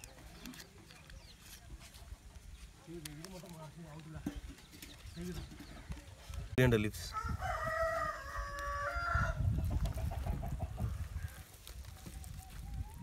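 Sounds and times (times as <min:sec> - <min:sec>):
rooster crowing: 0:07.1 - 0:09.5.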